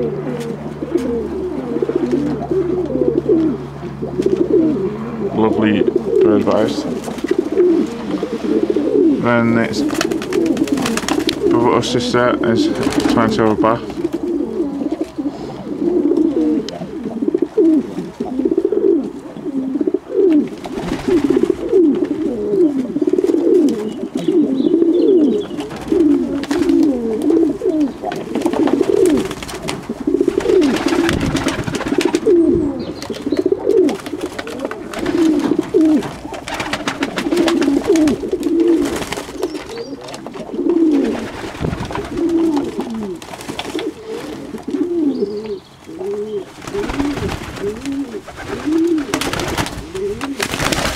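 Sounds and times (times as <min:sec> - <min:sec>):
doves and pigeons cooing: 0:00.0 - 0:50.9
wing flaps: 0:06.9 - 0:11.6, 0:12.7 - 0:15.2, 0:20.3 - 0:23.9, 0:25.5 - 0:45.0, 0:46.1 - 0:50.9.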